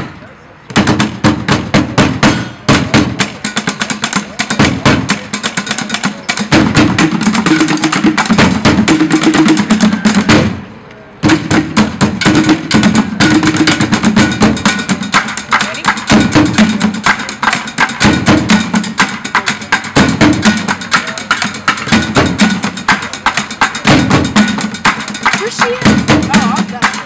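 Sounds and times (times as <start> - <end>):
improvised percussion on buckets and pans: 0.0 - 27.0.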